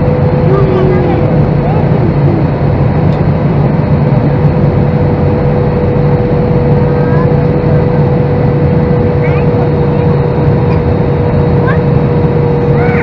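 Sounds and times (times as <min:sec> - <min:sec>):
airplane cabin noise: 0:00.0 - 0:13.0
steady hum: 0:00.0 - 0:13.0.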